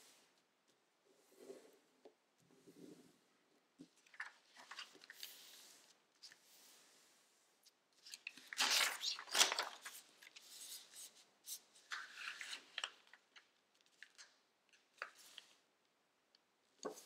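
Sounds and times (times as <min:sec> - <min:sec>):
paper rustling and crinkling: 0:04.0 - 0:06.4, 0:08.0 - 0:14.3.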